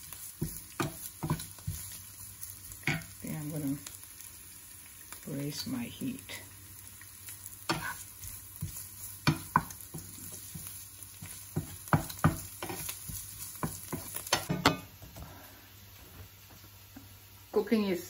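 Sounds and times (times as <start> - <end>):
wooden spatula scraping frying pan: 0.0 - 3.1, 7.7 - 14.9
food sizzling: 0.0 - 18.0.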